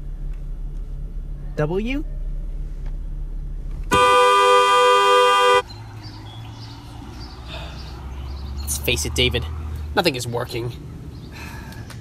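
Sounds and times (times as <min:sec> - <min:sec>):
car horn blast: 0:03.9 - 0:05.6.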